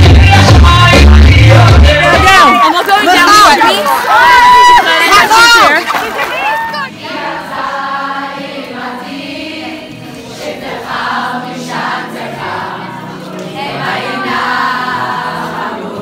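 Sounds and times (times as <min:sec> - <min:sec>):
girls singing together: 0:06.0 - 0:16.0.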